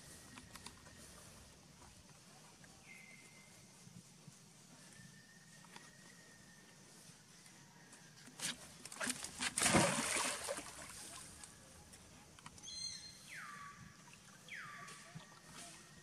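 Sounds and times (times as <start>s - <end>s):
water lapping and trickling: 8.2s - 12.6s, 13.4s - 16.0s
animal splashing into water: 8.8s - 11.3s.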